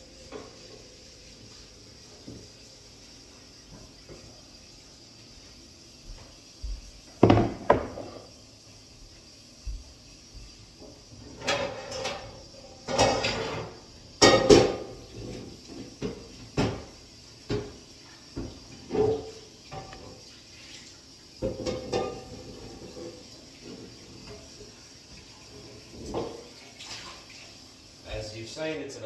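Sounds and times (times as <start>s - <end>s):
dishes and utensils clattering: 11.3s - 16.9s, 18.4s - 20.2s, 21.4s - 24.6s.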